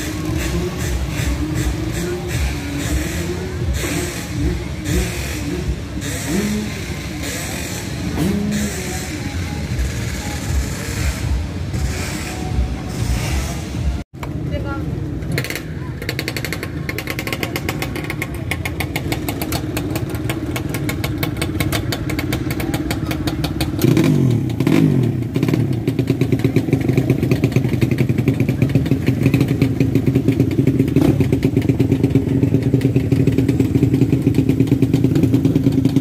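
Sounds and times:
motorcycle engines running: 0.0 - 36.0.

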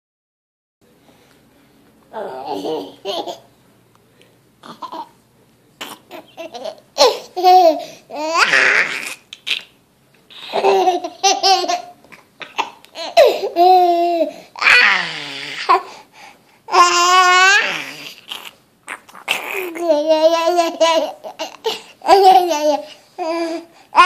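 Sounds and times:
toddler laughing: 2.2 - 3.5, 10.3 - 15.8, 19.3 - 24.0.

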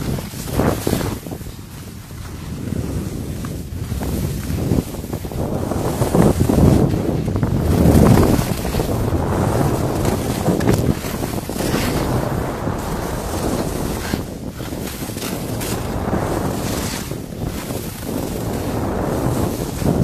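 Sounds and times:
skis scraping on snow: 0.0 - 20.0
wind on microphone: 0.0 - 20.0.

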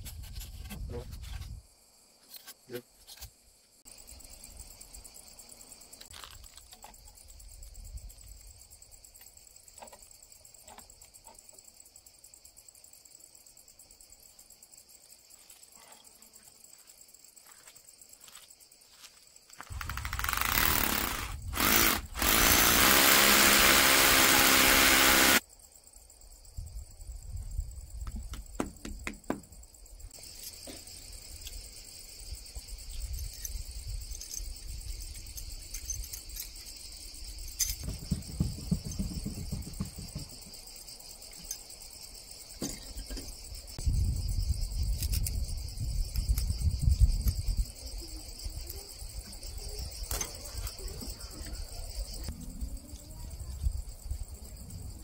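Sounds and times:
crickets chirping: 0.0 - 55.0
loud motor running: 20.2 - 25.4.

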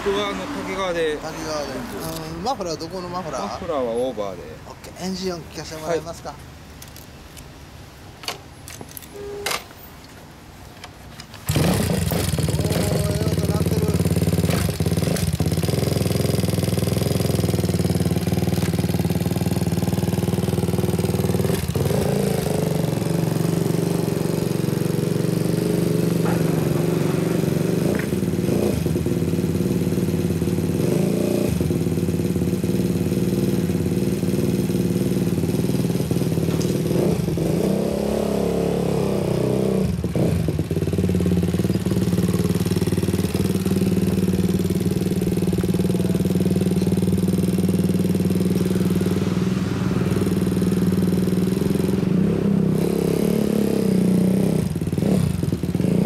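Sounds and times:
motorcycle engine running: 11.5 - 56.0.

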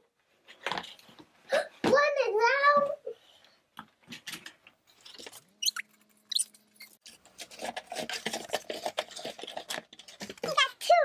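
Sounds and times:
high squeaks: 5.0 - 7.1
cardboard and plastic packaging rustling: 7.0 - 10.8.

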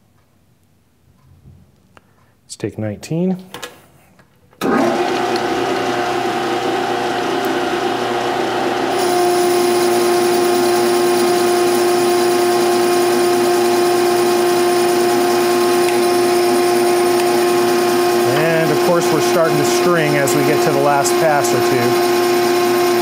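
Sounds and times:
metal lathe cutting steel: 4.6 - 23.0.

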